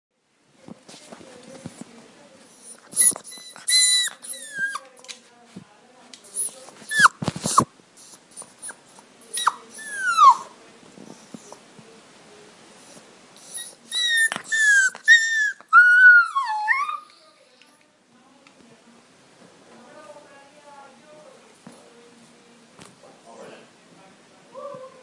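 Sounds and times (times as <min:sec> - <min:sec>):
puppies whimpering and squealing: 0:02.8 - 0:04.9, 0:06.4 - 0:07.7, 0:08.6 - 0:10.5, 0:13.4 - 0:17.1.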